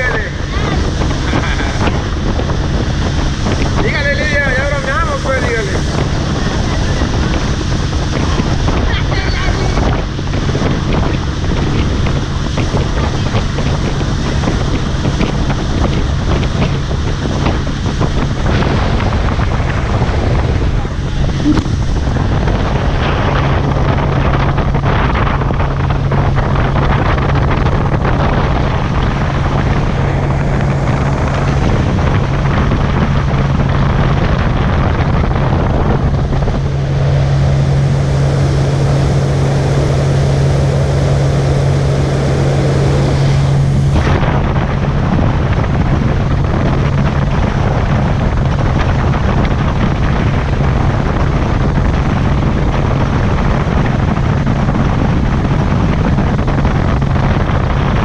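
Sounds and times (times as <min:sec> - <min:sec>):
outboard motor humming: 0:00.0 - 0:58.0
wind buffeting microphone: 0:00.0 - 0:58.0.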